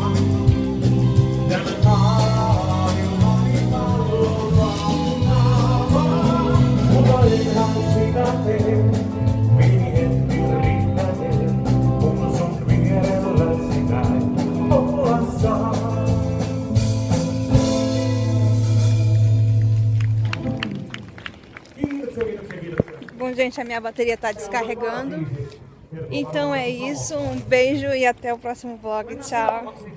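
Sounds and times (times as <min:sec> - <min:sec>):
person singing: 0:00.0 - 0:16.7
live band music: 0:00.0 - 0:21.6.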